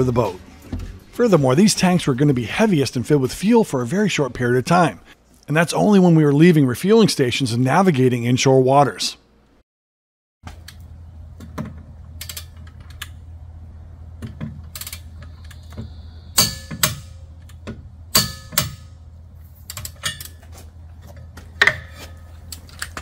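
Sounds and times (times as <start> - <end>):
steady low hum: 10.5 - 23.0.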